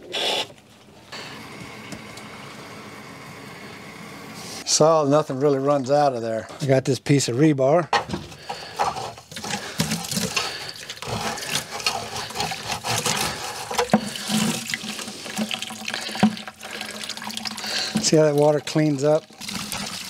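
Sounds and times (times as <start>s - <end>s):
water pouring into plastic bucket: 8.6s - 20.0s
metal rod scraping and knocking: 11.0s - 14.6s.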